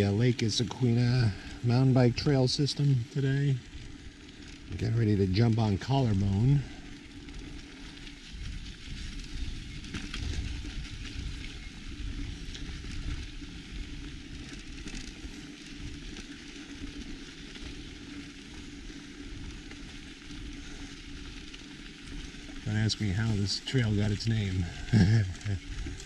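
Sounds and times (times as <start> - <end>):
bike tyres on gravel: 0.0 - 26.0
wind buffeting microphone: 0.0 - 26.0.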